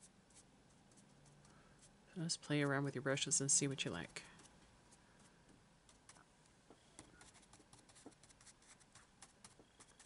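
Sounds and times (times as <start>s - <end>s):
paintbrush dabbing on paper: 7.0s - 10.0s.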